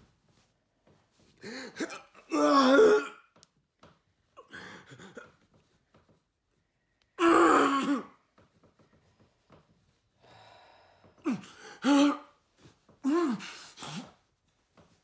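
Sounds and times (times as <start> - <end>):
man gasping and groaning: 10.3 - 12.3, 13.0 - 14.2.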